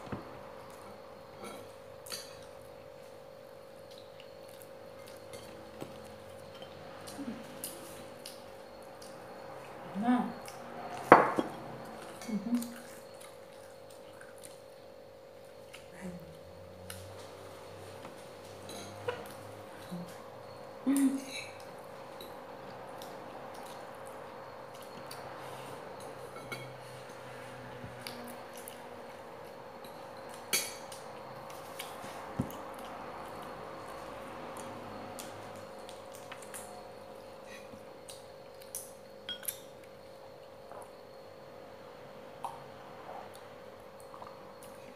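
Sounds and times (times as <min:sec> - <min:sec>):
faint steady hum: 0:00.0 - 0:44.9
dishes clinking: 0:26.3 - 0:26.8.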